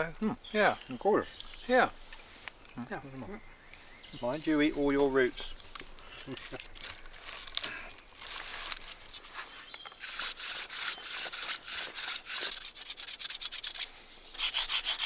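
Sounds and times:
stone rasping on wood: 0:10.0 - 0:15.0.

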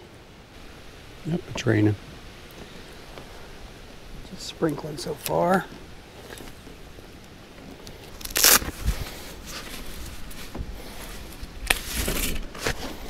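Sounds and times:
umbrella fabric rustling: 0:05.6 - 0:13.0
sharp ripping burst: 0:08.2 - 0:08.9.

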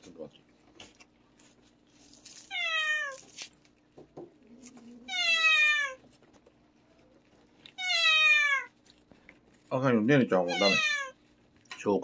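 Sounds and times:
cat meowing: 0:02.5 - 0:03.3, 0:04.6 - 0:06.1, 0:07.7 - 0:08.8, 0:10.4 - 0:11.2.

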